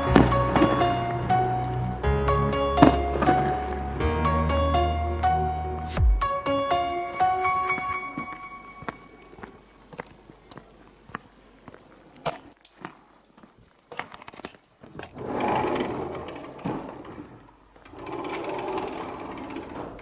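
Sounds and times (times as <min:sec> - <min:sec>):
footsteps: 0:05.8 - 0:14.6
sliding glass door rattling: 0:17.9 - 0:20.0.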